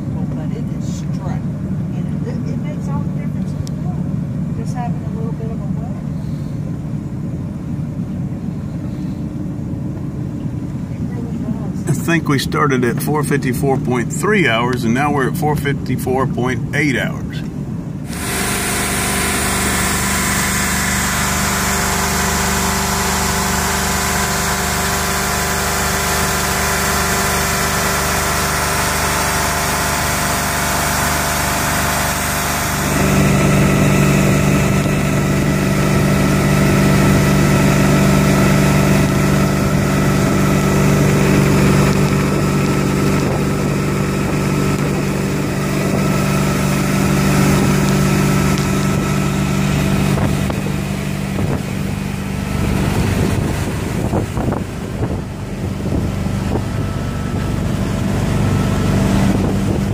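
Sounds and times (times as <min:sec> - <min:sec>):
boat engine running: 0:00.0 - 0:59.9
low hum: 0:00.0 - 0:59.9
water and wind hiss: 0:18.1 - 0:38.1, 0:38.9 - 0:59.9.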